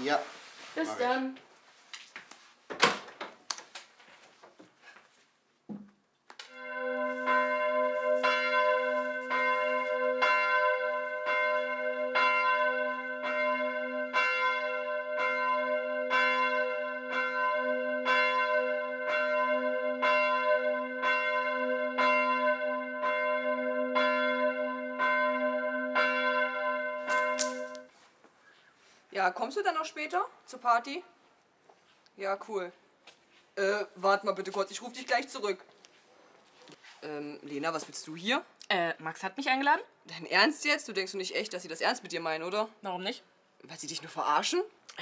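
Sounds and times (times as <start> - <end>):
church bell tolling: 6.5 - 27.9.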